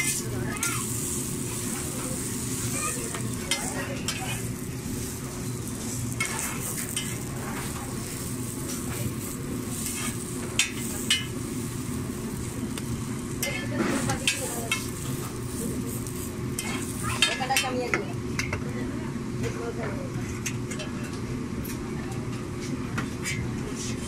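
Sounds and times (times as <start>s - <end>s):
metal spatula scraping griddle: 0.0s - 17.7s
food sizzling on griddle: 0.0s - 18.6s.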